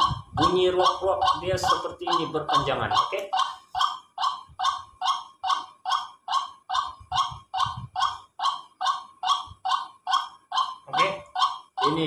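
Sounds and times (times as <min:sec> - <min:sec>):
bird call through phone speaker: 0:00.0 - 0:03.8, 0:10.7 - 0:12.0.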